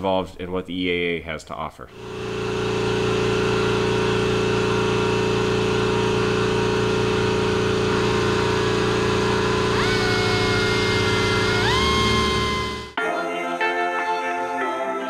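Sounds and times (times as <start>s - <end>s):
hand drill boring through metal: 2.0s - 13.0s.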